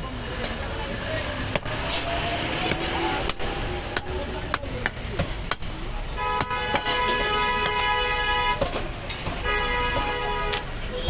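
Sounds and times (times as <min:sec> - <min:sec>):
cleaver chopping meat on wood: 0:01.4 - 0:01.8, 0:02.5 - 0:05.8, 0:06.4 - 0:07.8
vehicle horn: 0:06.2 - 0:08.6, 0:09.4 - 0:11.0.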